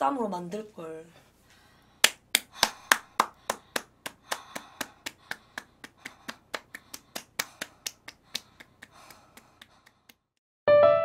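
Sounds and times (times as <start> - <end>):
hand slapping bare belly: 2.0 - 10.2.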